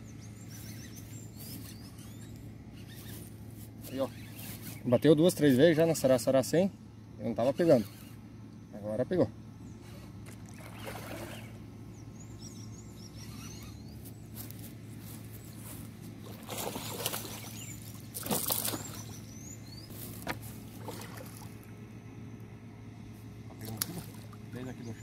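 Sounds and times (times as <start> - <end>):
fish splashing in water: 10.2 - 11.6, 16.2 - 19.3, 20.2 - 21.7.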